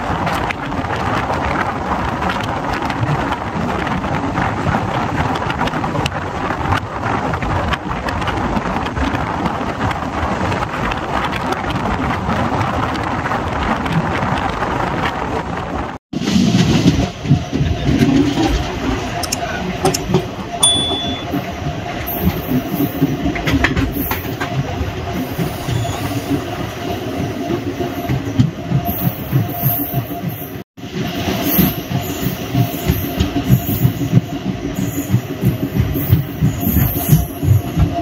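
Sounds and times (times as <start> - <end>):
rush of wind: 0.0 - 20.8
train wheels rumbling on rails: 0.0 - 38.0
scattered clicks: 19.2 - 20.1.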